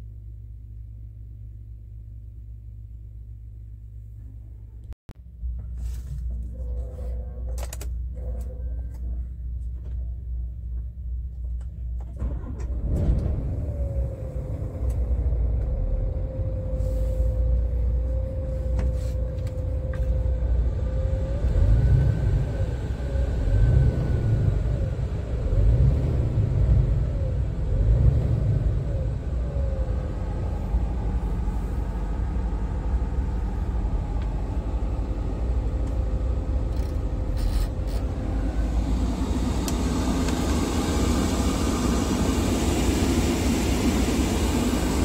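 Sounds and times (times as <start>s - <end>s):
diesel engine revving: 12.2s - 18.0s, 20.2s - 45.0s
diesel truck engine idling: 26.2s - 45.0s.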